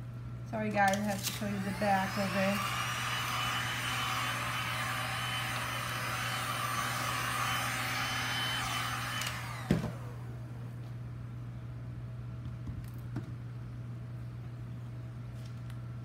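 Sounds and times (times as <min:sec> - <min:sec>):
low steady hum: 0:00.0 - 0:04.8, 0:09.4 - 0:16.0
heat gun fan blowing: 0:00.0 - 0:11.6.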